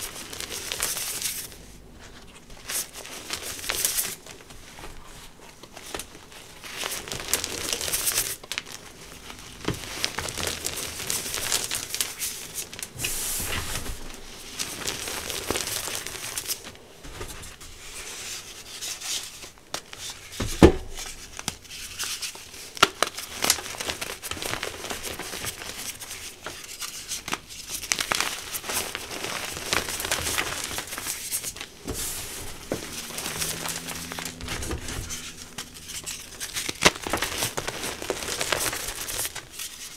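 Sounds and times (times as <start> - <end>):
chalk blocks crunching: 30.2 - 39.9.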